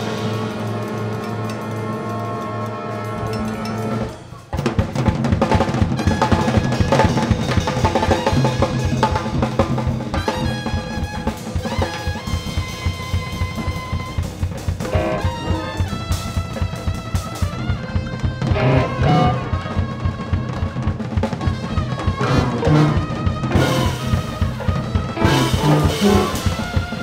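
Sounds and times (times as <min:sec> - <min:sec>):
drum kit playing fast: 0:00.0 - 0:27.0
pitched instrumental notes: 0:14.9 - 0:16.1, 0:18.5 - 0:20.0, 0:22.2 - 0:27.0
held low chord: 0:18.5 - 0:19.9.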